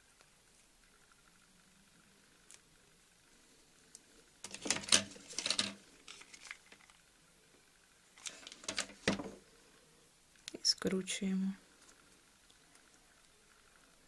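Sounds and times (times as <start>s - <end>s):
crackling rustling handling noise: 3.9s - 7.2s, 8.1s - 9.5s.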